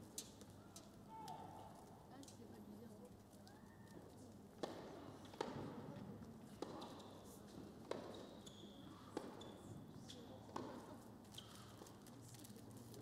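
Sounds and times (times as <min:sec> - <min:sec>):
racket striking ball: 0:04.6 - 0:05.8, 0:06.6 - 0:06.9, 0:07.8 - 0:08.3, 0:09.2 - 0:09.4, 0:10.5 - 0:10.9
shoes squeaking on court: 0:06.6 - 0:12.0.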